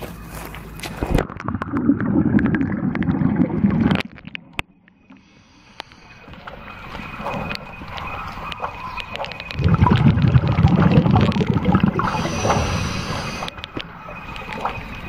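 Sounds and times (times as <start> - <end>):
faint water noise: 1.0 - 15.0
underwater bubbling rush: 1.1 - 4.8, 6.2 - 15.0
small underwater clicks: 3.8 - 15.0.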